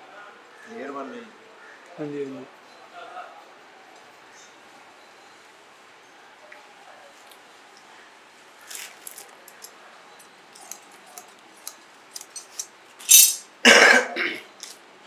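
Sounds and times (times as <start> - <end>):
plastic film clicks and crinkles: 8.6 - 13.0
shiny material crinkling and rustling: 8.6 - 13.3.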